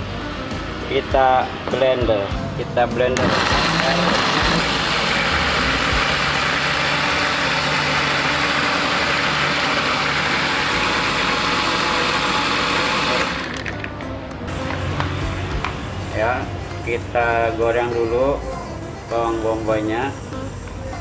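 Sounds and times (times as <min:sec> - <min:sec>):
blender running: 0:03.2 - 0:13.8.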